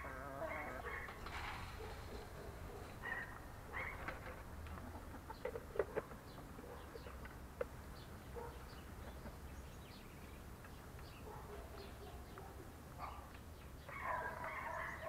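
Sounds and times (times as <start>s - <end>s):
hens clucking: 0.0s - 7.8s.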